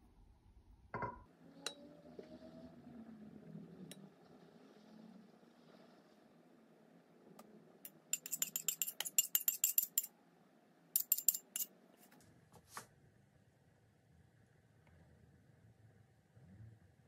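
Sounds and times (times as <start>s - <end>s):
metal spoon clinking against glass: 8.1s - 10.1s, 11.0s - 11.7s.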